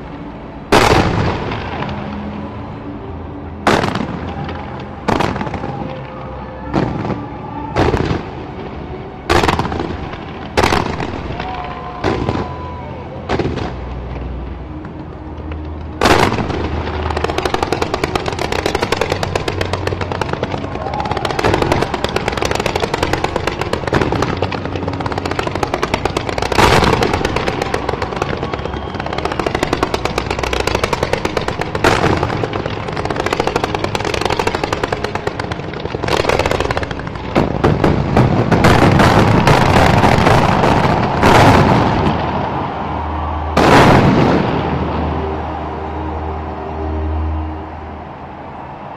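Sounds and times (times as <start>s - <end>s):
fireworks crackling: 0.0s - 2.8s, 3.7s - 45.6s
fireworks booms: 0.7s - 2.1s, 16.0s - 45.2s.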